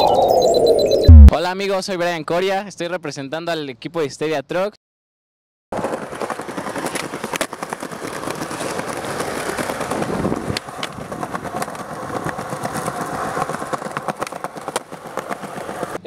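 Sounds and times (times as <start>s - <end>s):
skateboard wheels rolling on concrete: 5.7s - 16.0s
skateboard clacking on ledge: 5.8s - 16.0s.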